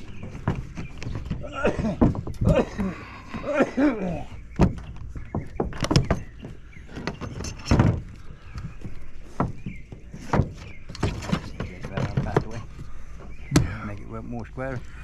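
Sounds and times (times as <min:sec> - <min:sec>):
scraping on metal: 0:04.8 - 0:13.5.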